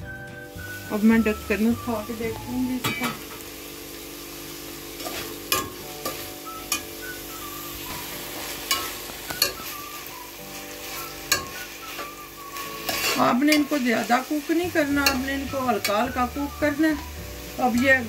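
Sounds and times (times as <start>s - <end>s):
vegetables sizzling: 0.0s - 18.0s
spoon stirring vegetables in pot: 5.0s - 6.9s, 7.9s - 18.0s
spoon clinking against pot: 11.3s - 11.6s.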